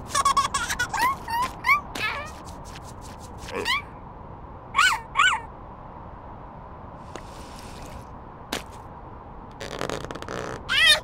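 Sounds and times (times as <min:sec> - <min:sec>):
cartoon high squeaks: 0:00.1 - 0:02.6, 0:03.5 - 0:03.9, 0:09.6 - 0:11.0.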